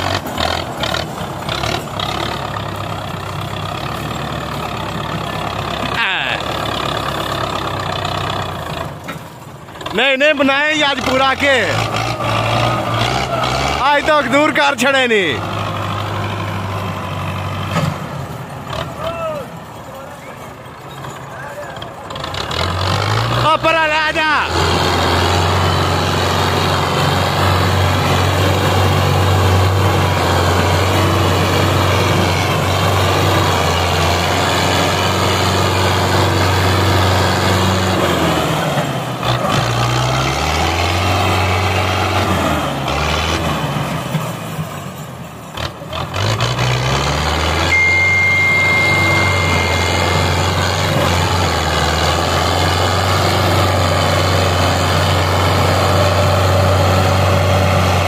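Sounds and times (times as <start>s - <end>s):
tractor diesel engine working hard: 0.0s - 58.0s
high steady tone: 47.7s - 51.0s.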